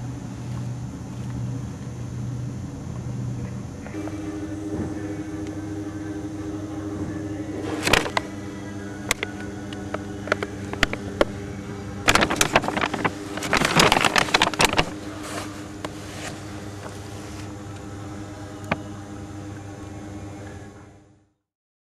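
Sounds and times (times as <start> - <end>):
steady mechanical hum: 0.0 - 21.4
plastic sack crinkling: 7.6 - 8.3, 10.3 - 11.4, 12.0 - 17.5.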